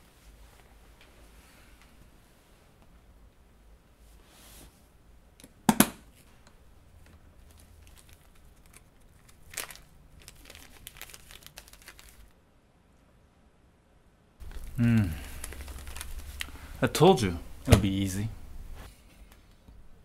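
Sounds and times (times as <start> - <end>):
small crackles: 6.2 - 12.4, 14.4 - 16.8
wrapper crinkling and tearing: 7.4 - 12.3, 14.4 - 16.8
wrapper snapping: 7.4 - 12.3, 14.4 - 16.6.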